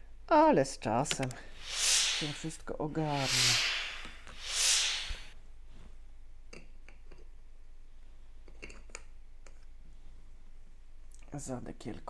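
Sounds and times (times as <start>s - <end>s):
breathy hiss: 1.3s - 5.3s.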